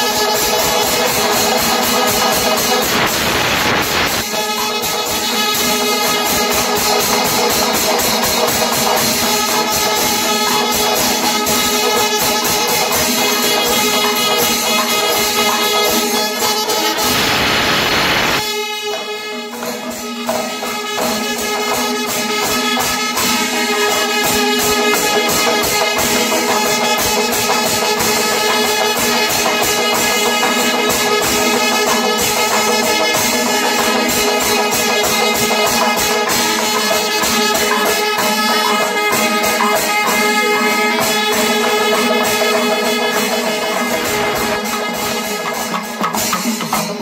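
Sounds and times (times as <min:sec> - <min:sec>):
horn-like tones: 0:00.0 - 0:46.4
clashing cymbals: 0:00.0 - 0:47.0
drums rhythm: 0:00.0 - 0:47.0
loud noisy crash: 0:00.5 - 0:04.8, 0:15.9 - 0:18.5.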